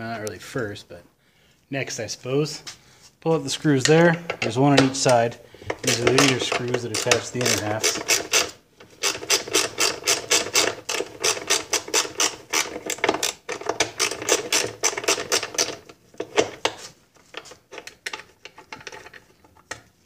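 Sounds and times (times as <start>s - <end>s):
tool clicking: 3.8s - 16.8s.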